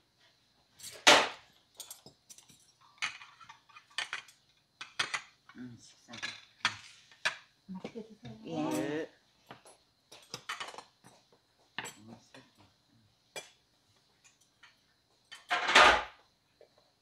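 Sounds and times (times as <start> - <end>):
loud clatter of dishes: 0.9 - 5.3, 15.3 - 16.2
chopsticks and spoons clinking on dishes: 1.8 - 4.4.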